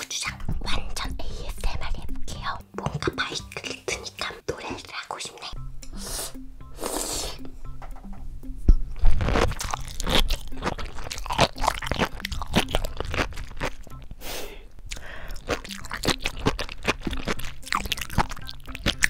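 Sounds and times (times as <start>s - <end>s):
seaweed crunching in mouth: 9.0s - 14.1s, 14.9s - 19.0s.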